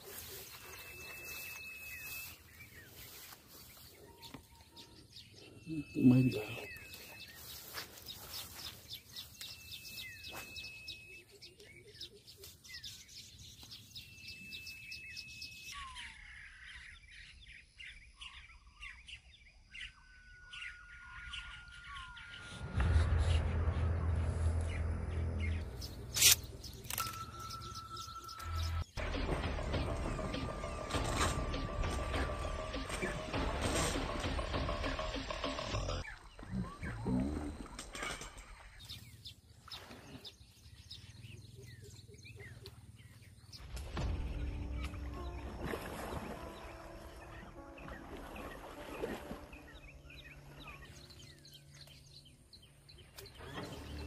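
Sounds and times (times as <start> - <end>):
downward-slurred bird calls: 0.0 - 12.6
birds chirping faintly: 0.0 - 29.0, 34.6 - 54.0
thin steady whistling tone: 0.6 - 2.5, 9.5 - 11.4.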